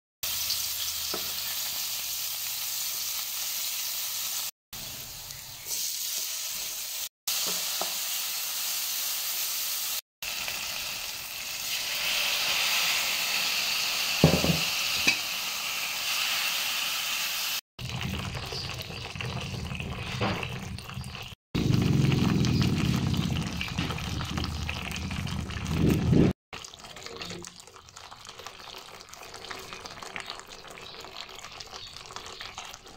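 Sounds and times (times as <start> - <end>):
sizzling in hot oil: 0.2 - 32.9
broth simmering: 17.8 - 32.9.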